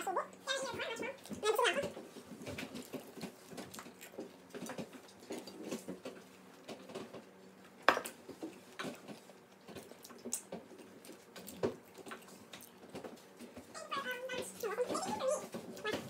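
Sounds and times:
chewing and mouth smacks: 0:02.2 - 0:16.0.

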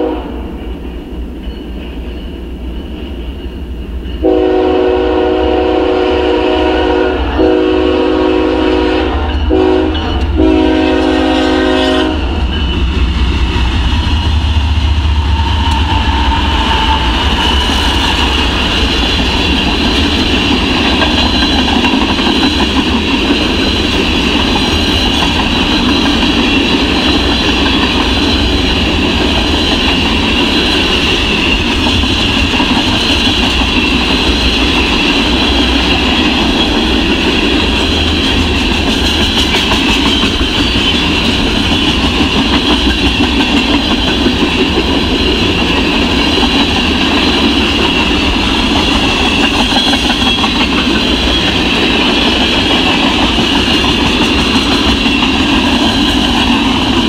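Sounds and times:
locomotive air horn: 0:00.0 - 0:00.5, 0:04.2 - 0:12.4
train rumbling past: 0:00.0 - 0:57.0
wheels clacking over rails: 0:12.4 - 0:57.0.

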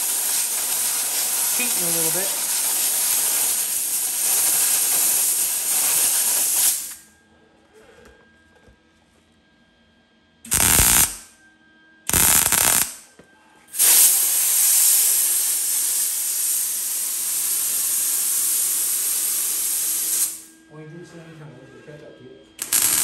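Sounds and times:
compressed air blow gun hissing: 0:00.0 - 0:07.0, 0:13.7 - 0:20.5, 0:22.6 - 0:23.0.

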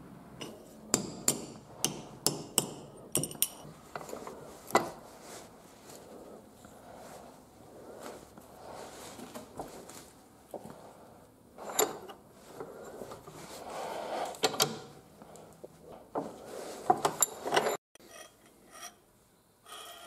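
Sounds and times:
metal handle clinking: 0:03.1 - 0:04.1.

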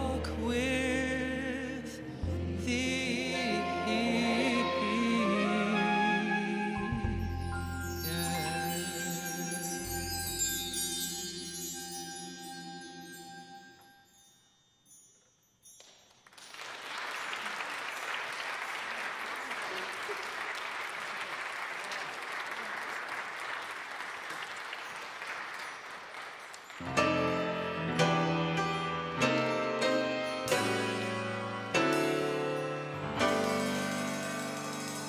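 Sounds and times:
instrumental music: 0:00.0 - 0:15.0, 0:26.8 - 0:35.0
choir holding a chord: 0:01.3 - 0:07.0
audience applauding: 0:16.2 - 0:27.5.

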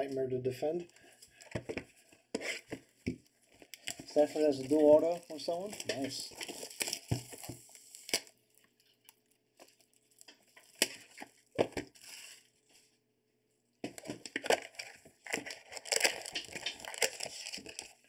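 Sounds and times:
plastic wrap tearing and crinkling: 0:03.4 - 0:12.6, 0:13.9 - 0:18.0.

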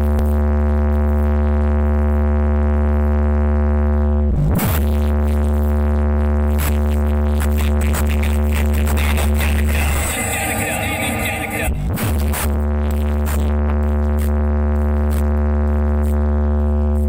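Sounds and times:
bass-heavy electronic music: 0:06.5 - 0:13.4
deep bass tone: 0:08.8 - 0:12.2.

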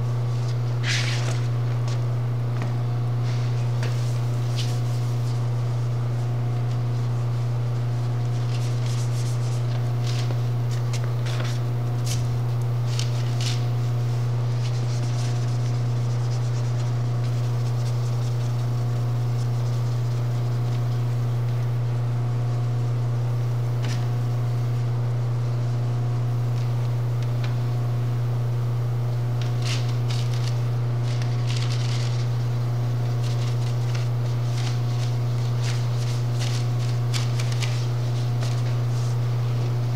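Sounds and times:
machine hum: 0:00.0 - 0:39.9
paper and plastic rustling: 0:29.4 - 0:32.4, 0:33.0 - 0:39.2.

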